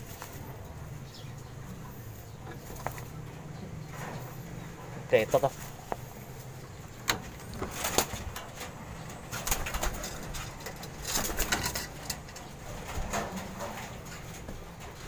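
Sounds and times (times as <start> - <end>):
rustles and scuffs: 0.0 - 0.6
pigeons cooing: 0.0 - 15.0.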